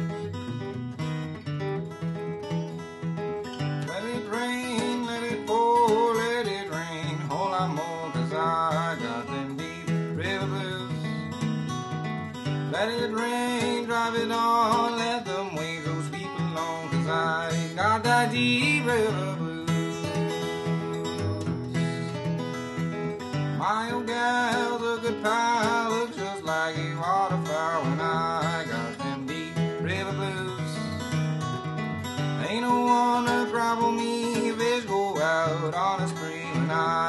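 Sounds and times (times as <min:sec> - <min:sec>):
fingerpicked acoustic guitar: 0:00.0 - 0:37.0.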